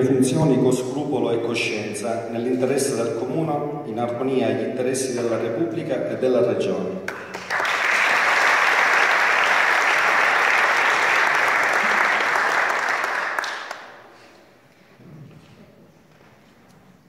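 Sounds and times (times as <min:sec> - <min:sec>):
audience applauding: 0:07.1 - 0:14.2.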